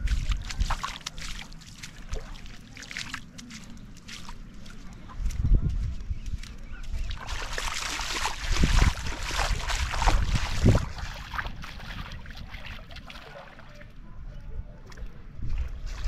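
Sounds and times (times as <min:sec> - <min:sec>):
wind buffeting microphone: 0:00.0 - 0:01.0, 0:04.4 - 0:13.4, 0:14.0 - 0:16.0
small waves washing on shore: 0:06.9 - 0:14.0.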